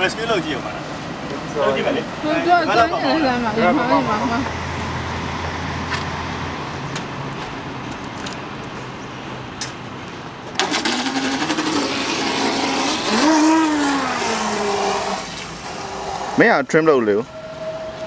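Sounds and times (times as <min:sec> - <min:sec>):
electric motor whine: 0:10.6 - 0:16.4.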